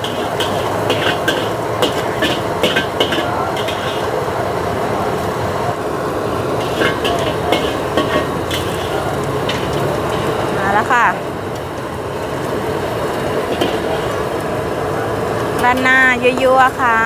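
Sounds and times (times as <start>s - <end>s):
metal spatula scraping a wok: 0.0s - 4.2s, 6.5s - 10.5s
frying sizzle: 0.0s - 17.0s.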